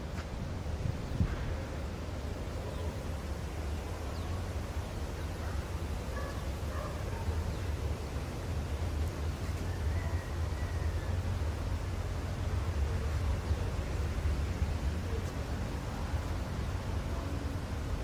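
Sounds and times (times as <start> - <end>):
wind rumbling on microphone: 0.0 - 9.5.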